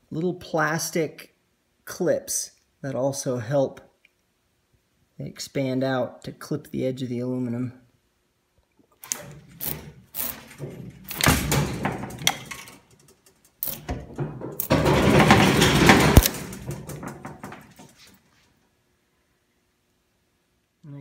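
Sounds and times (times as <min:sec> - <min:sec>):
metal clicks and scrapes: 0:09.0 - 0:17.2.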